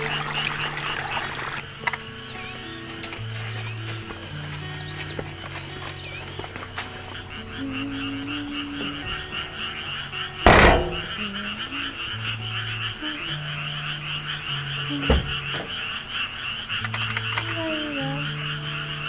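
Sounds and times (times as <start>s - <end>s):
frogs croaking: 0.0s - 19.0s
soft background music: 0.0s - 19.0s
van rear hatch slamming: 10.4s - 11.2s.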